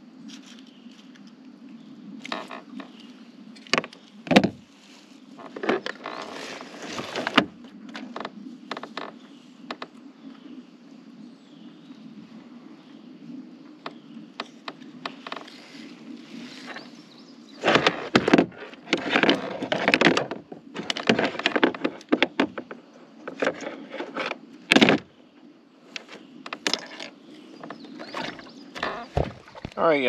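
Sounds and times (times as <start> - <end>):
knocks clicks and scrapes on kayak: 2.2 - 4.7, 5.3 - 10.0, 13.8 - 25.1, 25.9 - 30.0.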